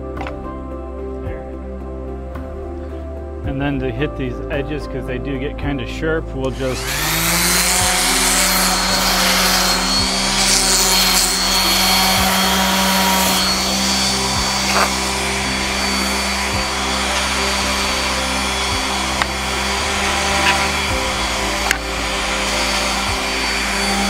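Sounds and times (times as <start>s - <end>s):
high motor whine: 6.5s - 24.0s
orbital sander on wood: 6.5s - 24.0s.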